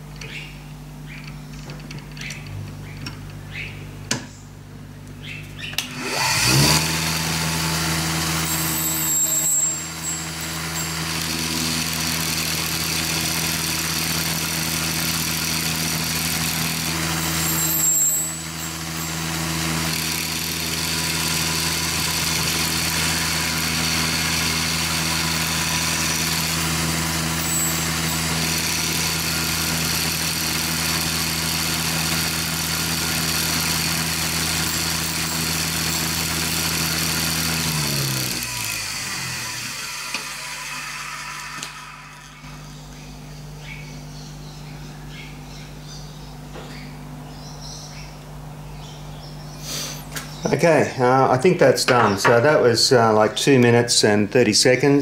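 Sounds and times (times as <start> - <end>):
grinder motor spinning up and humming: 5.8 - 43.0.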